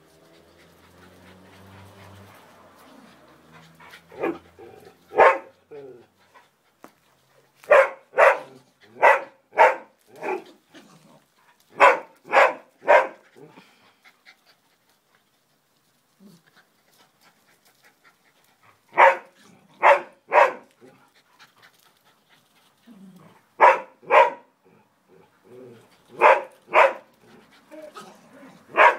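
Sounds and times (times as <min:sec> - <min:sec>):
small dogs barking: 0:04.1 - 0:05.7, 0:07.6 - 0:10.5, 0:11.7 - 0:13.2, 0:18.9 - 0:20.9, 0:23.6 - 0:24.5, 0:26.1 - 0:27.2, 0:27.8 - 0:28.9.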